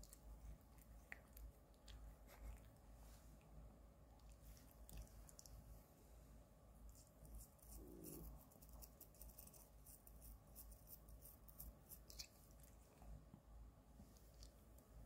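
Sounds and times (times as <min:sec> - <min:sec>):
toothbrush scrubbing teeth: 0:06.9 - 0:12.4.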